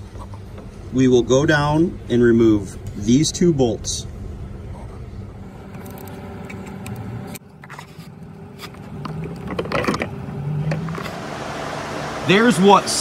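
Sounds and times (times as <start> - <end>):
steady low background hum: 0.0 - 12.7.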